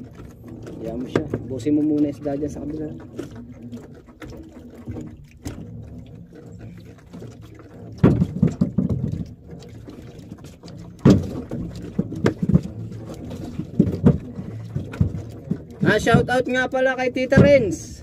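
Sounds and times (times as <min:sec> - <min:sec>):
knocks on wooden boat: 0:07.9 - 0:09.3, 0:11.0 - 0:16.6, 0:17.2 - 0:18.0.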